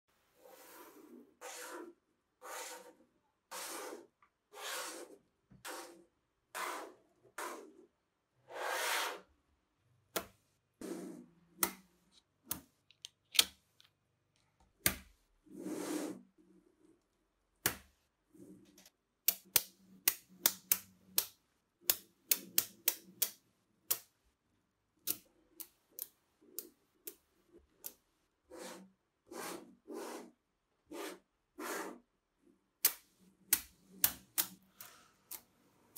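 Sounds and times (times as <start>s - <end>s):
magnetic balls rasping on tabletop: 0.4s - 7.9s.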